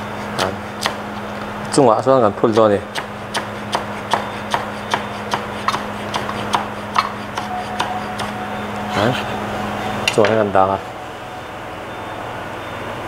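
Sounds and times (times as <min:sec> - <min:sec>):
knife chopping on wooden board: 0:00.2 - 0:01.0, 0:02.5 - 0:08.4.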